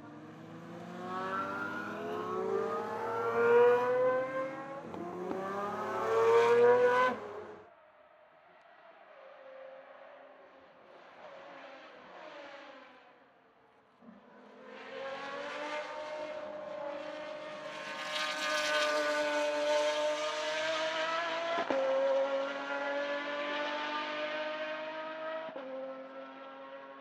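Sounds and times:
race car accelerating past: 0:00.0 - 0:07.6, 0:14.4 - 0:27.0.

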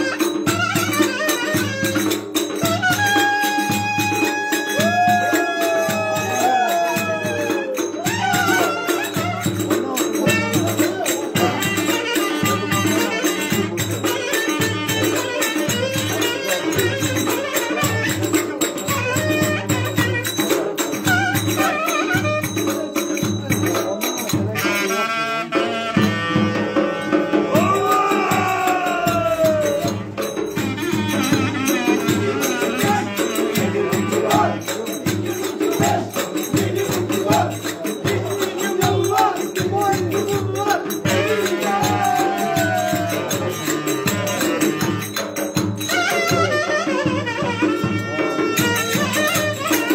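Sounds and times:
reed wind instrument tune: 0:00.0 - 0:49.9
bass drum beat: 0:26.0 - 0:45.0.

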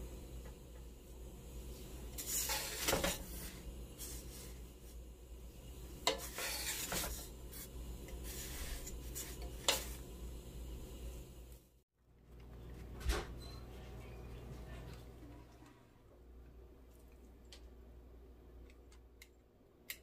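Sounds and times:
low steady hum: 0:00.0 - 0:20.0
utensils scraping dishes: 0:02.1 - 0:03.5, 0:06.0 - 0:07.3.

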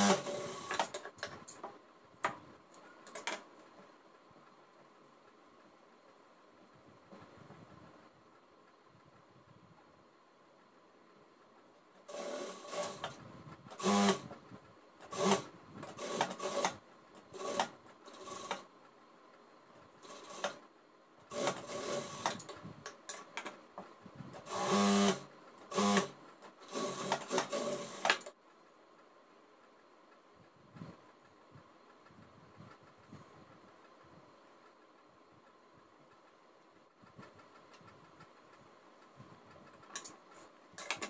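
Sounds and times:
sewing machine stitching: 0:00.0 - 0:01.3, 0:12.1 - 0:14.4, 0:15.0 - 0:18.7, 0:20.0 - 0:20.7, 0:21.3 - 0:22.5, 0:24.4 - 0:28.4.

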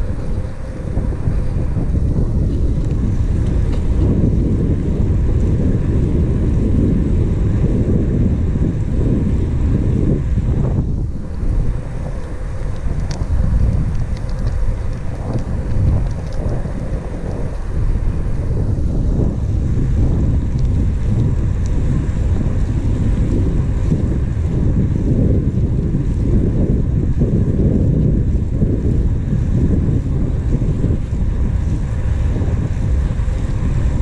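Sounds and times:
wind buffeting microphone: 0:00.0 - 0:34.0
faint ticks: 0:11.2 - 0:18.6, 0:19.2 - 0:24.6.

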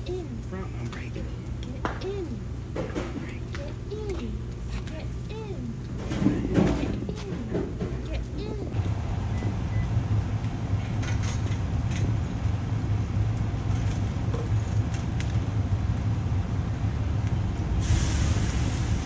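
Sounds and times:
short burst of hiss: 0:17.8 - 0:19.0.

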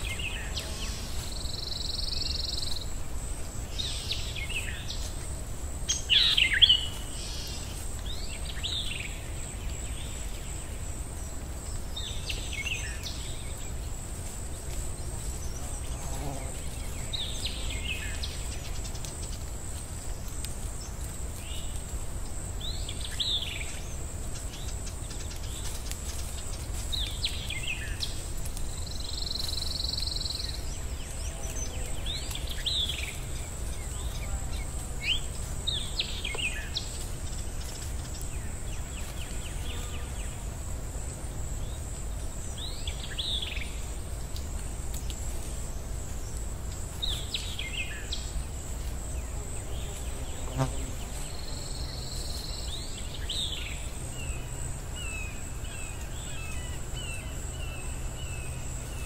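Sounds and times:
birds chirping: 0:00.0 - 0:40.5
insect drone: 0:00.0 - 0:59.0.

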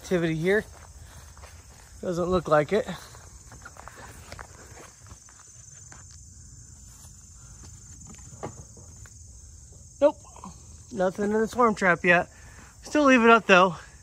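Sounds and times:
insects trilling: 0:00.0 - 0:14.0.

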